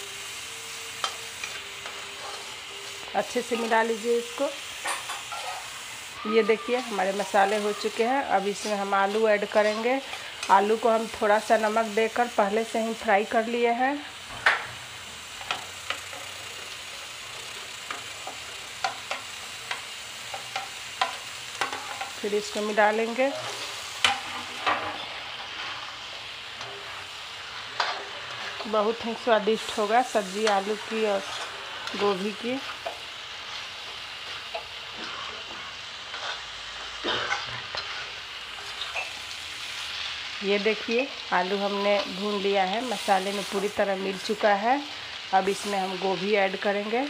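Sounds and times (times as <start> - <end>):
food sizzling in a pan: 0.0 - 47.0
metal spatula scraping pan: 4.9 - 5.7.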